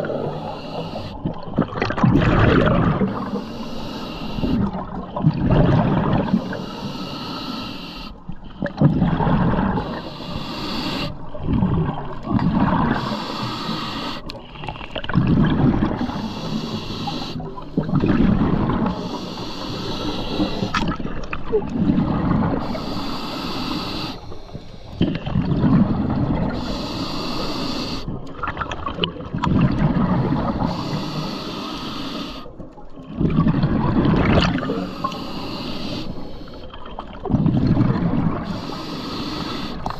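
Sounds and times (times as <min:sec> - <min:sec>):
scuba regulator breathing hiss: 0:00.0 - 0:01.2, 0:03.1 - 0:04.6, 0:06.3 - 0:08.2, 0:09.8 - 0:11.2, 0:12.9 - 0:14.3, 0:15.9 - 0:17.9, 0:18.9 - 0:20.8, 0:22.6 - 0:25.0, 0:26.5 - 0:28.1, 0:30.4 - 0:32.5, 0:34.7 - 0:36.7, 0:38.4 - 0:39.9
bubbling exhaled air: 0:00.0 - 0:07.6, 0:08.6 - 0:32.3, 0:33.1 - 0:39.9.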